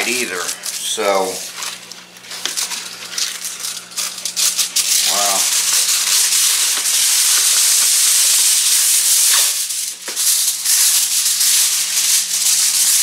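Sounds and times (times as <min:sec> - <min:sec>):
aluminium foil crinkling: 0:00.0 - 0:13.0.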